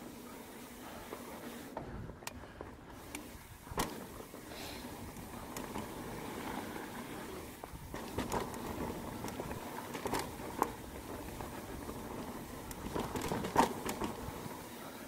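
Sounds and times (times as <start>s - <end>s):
bike tyres rolling on dirt: 0.0s - 15.0s
bike knocks and rattles: 1.7s - 14.6s.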